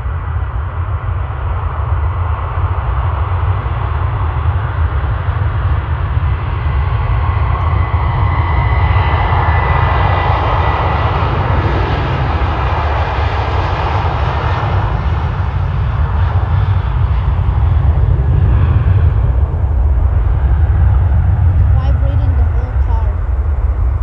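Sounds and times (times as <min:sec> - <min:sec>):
jet engines roaring at takeoff: 0:00.0 - 0:24.0.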